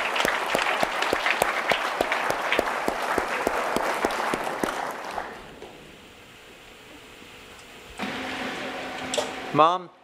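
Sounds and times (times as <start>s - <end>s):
crowd applauding: 0.0s - 5.5s.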